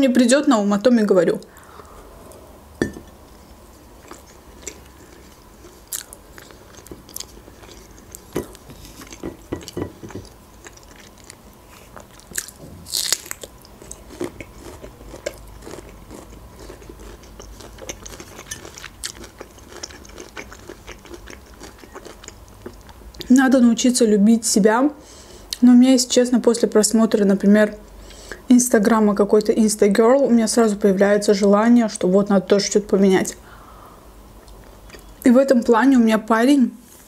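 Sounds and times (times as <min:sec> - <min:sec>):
person chewing and biting food: 0:03.1 - 0:23.3.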